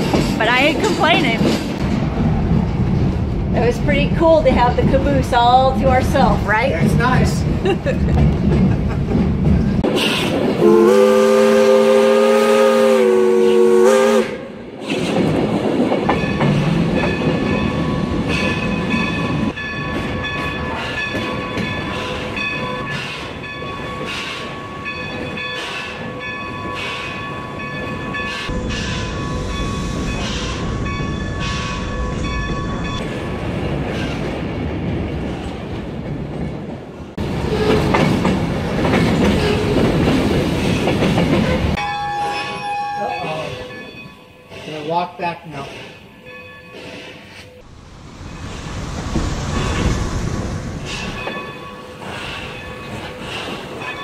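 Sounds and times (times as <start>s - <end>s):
train running rhythmically: 0.0s - 42.3s, 48.1s - 54.0s
steam locomotive whistle: 10.6s - 14.6s.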